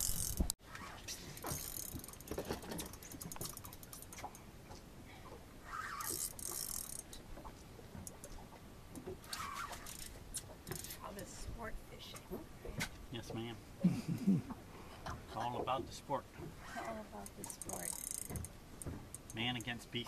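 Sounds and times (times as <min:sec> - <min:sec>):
fishing reel ratcheting clicks: 0:00.0 - 0:00.5, 0:01.4 - 0:04.1, 0:06.0 - 0:07.2, 0:09.8 - 0:10.1, 0:17.2 - 0:18.5.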